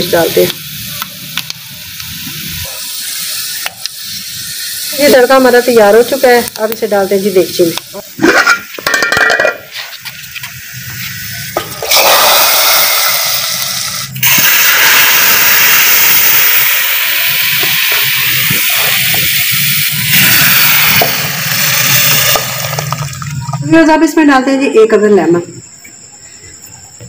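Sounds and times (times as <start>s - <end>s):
hot oil hissing and sizzling: 0.0s - 23.6s
frying pan clattering: 8.2s - 9.7s.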